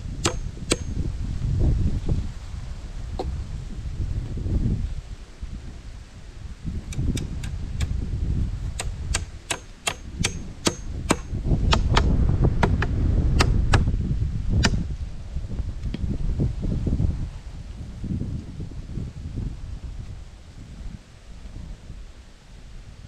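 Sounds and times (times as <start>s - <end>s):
hatchet knocking on wooden poles: 0.2s - 1.0s, 6.9s - 7.9s, 8.7s - 13.9s.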